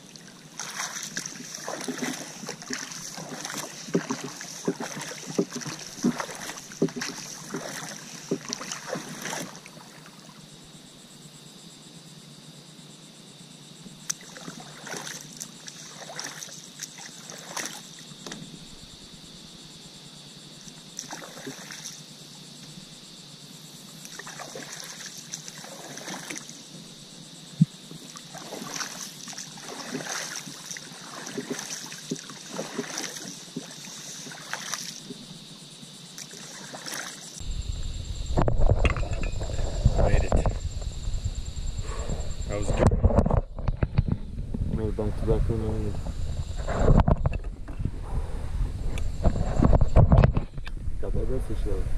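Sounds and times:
hands paddling water: 0.0s - 10.0s, 14.1s - 17.9s, 24.0s - 26.5s, 27.9s - 35.2s, 36.2s - 37.3s.

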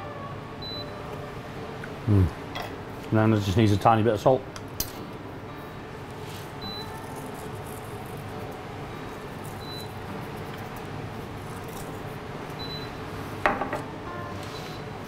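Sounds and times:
commercial kitchen background noise: 0.0s - 15.0s.

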